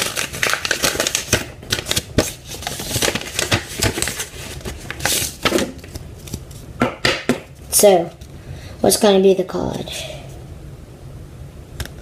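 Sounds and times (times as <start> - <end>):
paper wrapping rustling: 0.0 - 6.7.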